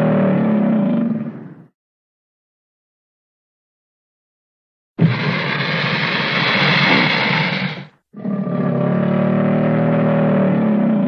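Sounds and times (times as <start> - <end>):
alligator bellow: 0.0 - 1.6, 5.0 - 11.0
alligator hissing growl: 5.0 - 9.6.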